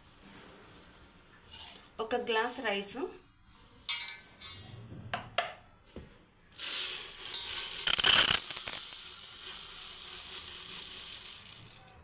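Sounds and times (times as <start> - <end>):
grains pouring into metal cup: 6.5 - 12.0
sharp clinks: 7.2 - 9.3.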